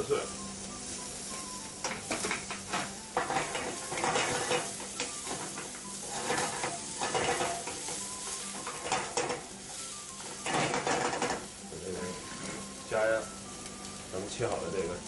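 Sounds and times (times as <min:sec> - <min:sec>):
food sizzling in oil: 0:00.0 - 0:15.0
wooden spoon scraping pan: 0:01.3 - 0:09.5, 0:10.3 - 0:12.7.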